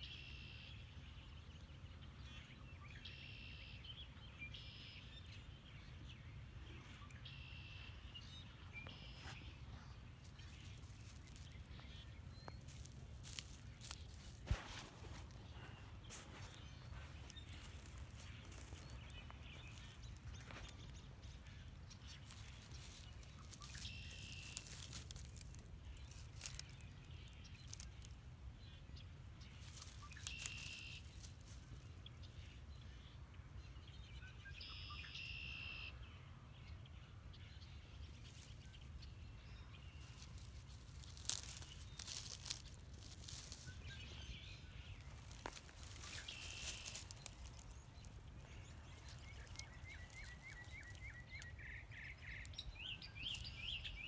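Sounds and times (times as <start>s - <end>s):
bird chirping: 0.0s - 54.0s
footsteps through dry grass: 8.7s - 32.6s, 37.8s - 54.0s.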